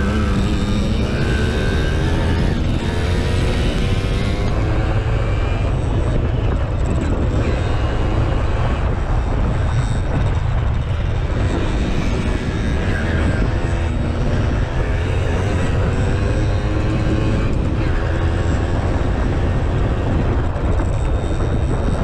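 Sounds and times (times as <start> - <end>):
moped engine running hard: 0.0 - 22.0.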